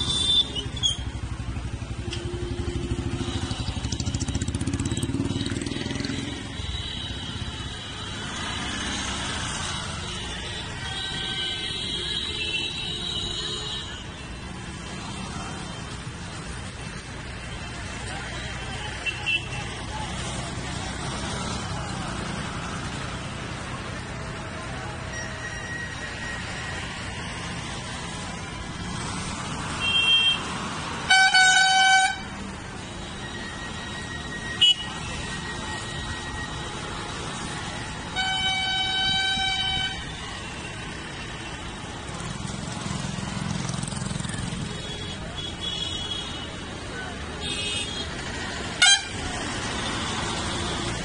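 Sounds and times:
road noise: 0.0 - 51.0
car horns honking: 29.8 - 36.6, 37.6 - 40.5, 47.4 - 51.0.

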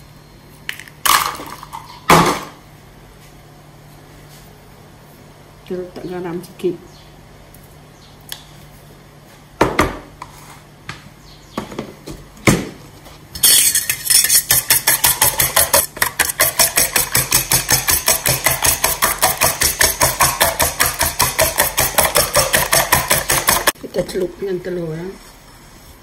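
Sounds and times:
spoon beating eggs in metal bowl: 13.4 - 23.8.

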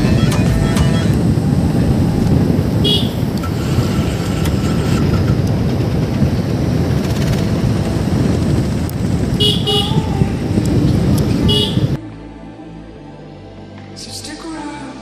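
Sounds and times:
motorcycle engine rumble: 0.0 - 12.0
wind buffeting microphone: 0.0 - 12.0.

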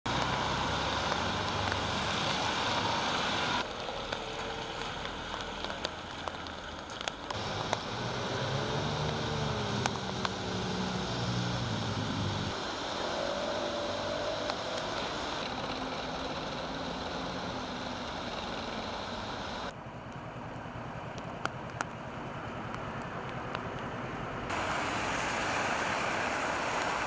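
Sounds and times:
water drips ticking: 0.1 - 2.4
rain falling on paving: 0.1 - 19.7, 21.1 - 27.0
tyres hissing on wet road: 0.1 - 19.8, 22.4 - 27.0
vehicle engine humming past: 7.3 - 19.7.

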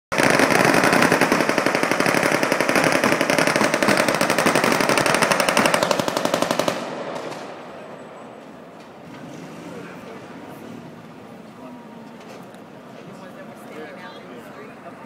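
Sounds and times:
automatic machine-gun fire: 0.1 - 7.6.

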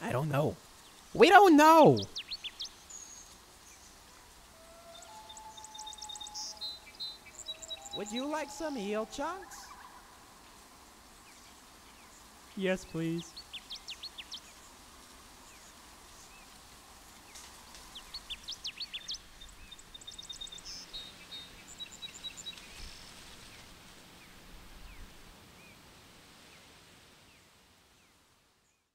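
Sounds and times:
birds chirping and trilling: 0.0 - 10.2, 18.0 - 23.6
steady outdoor hiss: 0.0 - 28.9.

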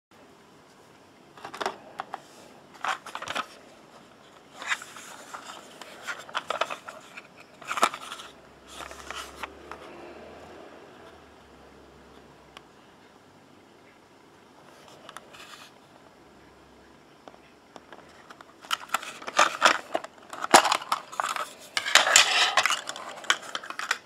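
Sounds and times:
plastic case scraping and clicking: 1.4 - 3.6, 4.3 - 9.9, 17.8 - 24.0.

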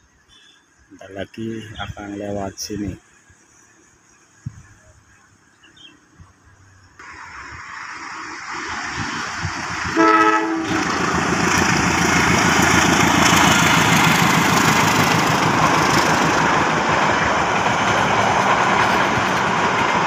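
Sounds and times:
train wheels rumbling on rails: 7.0 - 20.0
locomotive horn: 9.9 - 11.1.

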